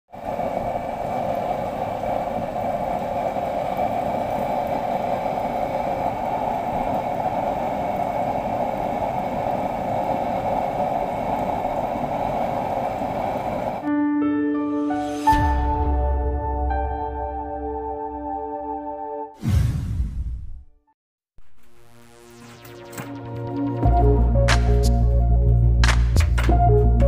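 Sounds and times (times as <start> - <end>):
oil burner stove rushing: 0.1 - 13.9.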